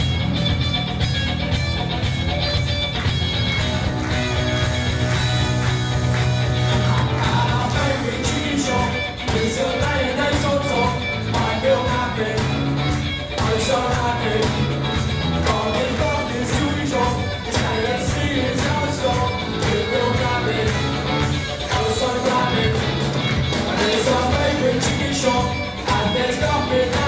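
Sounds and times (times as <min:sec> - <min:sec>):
live rock band: 0:00.0 - 0:27.0
two people singing: 0:06.8 - 0:27.0.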